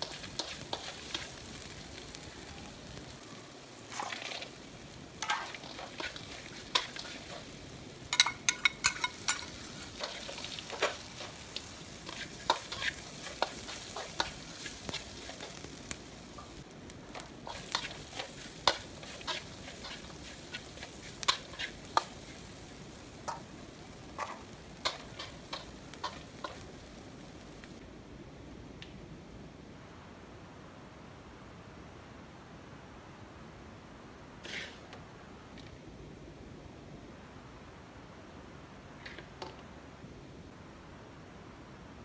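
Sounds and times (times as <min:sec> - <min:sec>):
sizzling in a pan: 0:00.0 - 0:27.8, 0:34.4 - 0:34.9
utensil clinking and scraping pan: 0:05.2 - 0:07.5, 0:08.1 - 0:15.6, 0:17.5 - 0:22.5.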